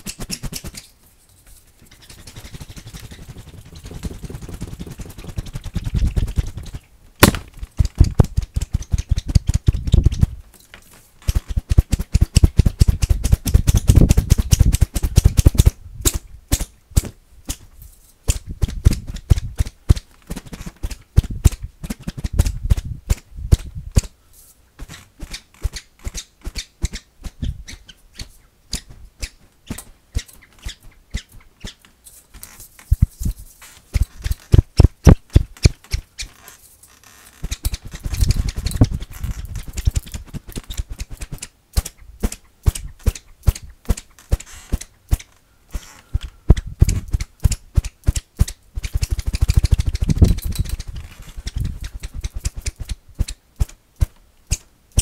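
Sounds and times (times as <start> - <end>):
plastic strip whipping cracks: 4.0 - 10.3, 11.2 - 17.7, 37.3 - 45.3.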